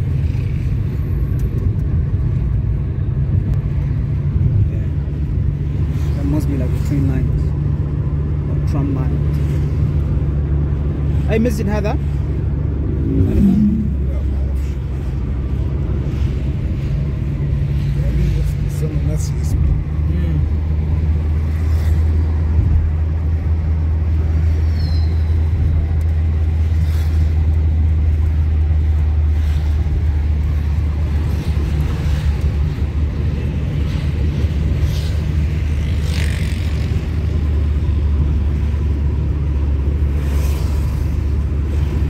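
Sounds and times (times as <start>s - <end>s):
car engine and tyre rumble: 0.0s - 42.0s.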